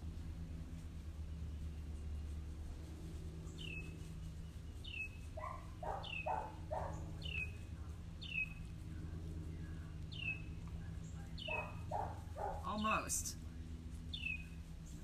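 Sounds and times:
steady low hum: 0.0 - 15.0
bird chirping: 3.5 - 3.9, 4.7 - 8.7, 9.6 - 13.0, 14.1 - 15.0.

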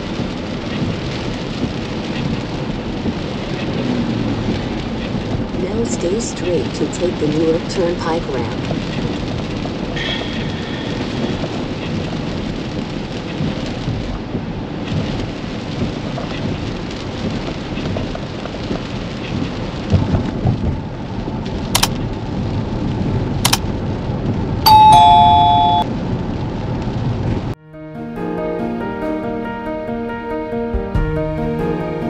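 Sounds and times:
rain and wet road rumble: 0.0 - 27.6
sharp clicks: 21.8 - 22.0, 23.4 - 23.6
two-note chime: 24.7 - 25.9.

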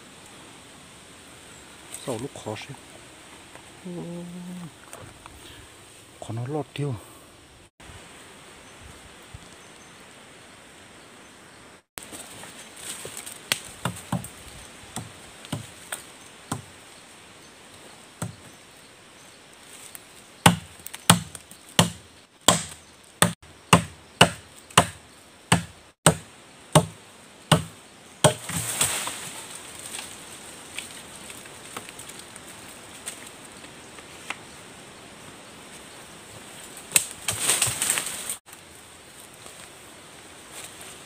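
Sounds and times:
branches rustling: 0.0 - 6.2, 12.0 - 41.0
machete chopping wood: 13.5 - 14.3, 20.4 - 28.9.

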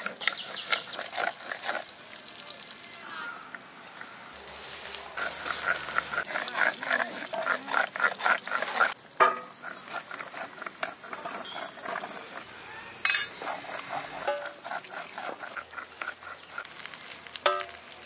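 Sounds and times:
stone roller rubbing on grinding stone: 0.0 - 1.9, 5.2 - 9.0, 9.6 - 17.0.

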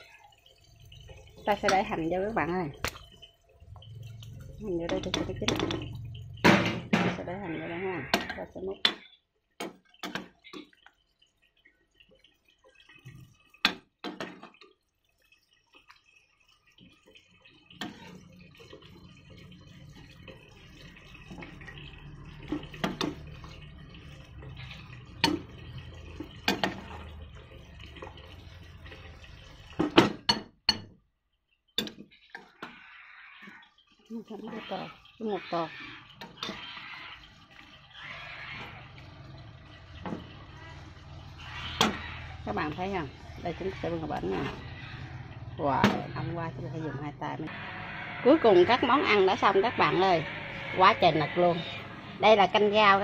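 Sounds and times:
broth dripping and splashing: 0.0 - 53.0.

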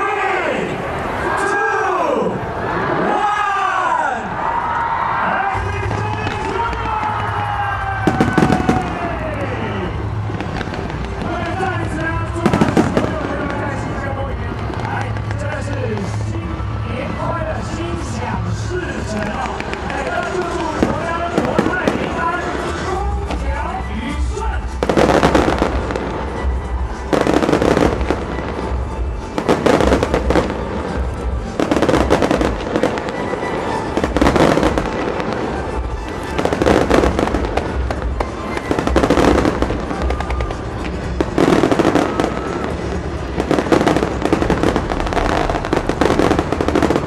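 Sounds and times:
music playing: 0.1 - 47.0
fireworks bursting and crackling: 4.9 - 47.0.

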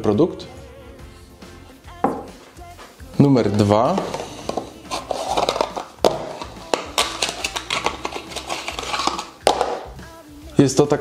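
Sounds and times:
cardboard scraping and tearing: 4.1 - 9.4.

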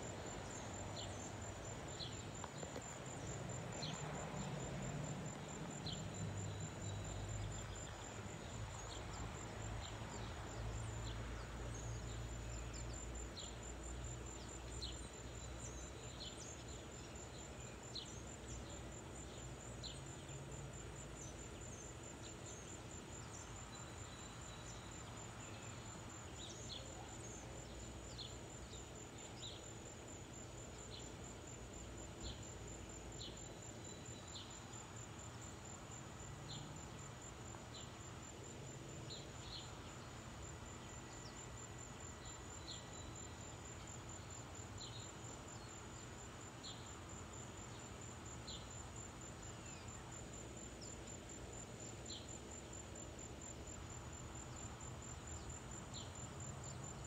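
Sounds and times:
high-pitched insect trill: 30.8 - 57.0.

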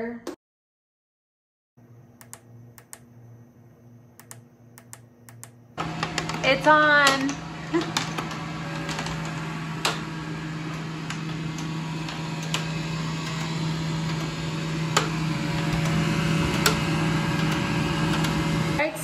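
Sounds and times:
sharp clicks: 2.2 - 3.1, 4.2 - 5.6
clothes dryer running: 4.1 - 19.0.

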